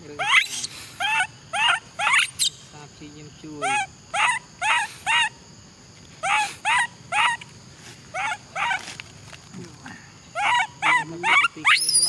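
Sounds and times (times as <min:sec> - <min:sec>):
macaque high cries: 0:00.0 - 0:02.7, 0:03.6 - 0:05.4, 0:06.2 - 0:07.5, 0:08.1 - 0:09.0, 0:10.3 - 0:12.0.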